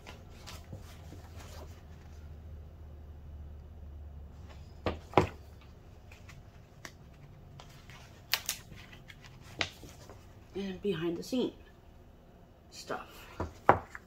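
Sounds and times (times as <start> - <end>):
page rustles: 0.0 - 2.2, 6.0 - 10.3
booklet slapping on table: 7.6 - 10.2.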